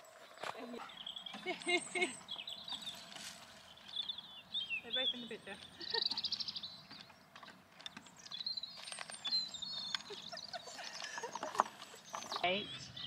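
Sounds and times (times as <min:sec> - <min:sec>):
small birds chirping: 0:00.1 - 0:13.0.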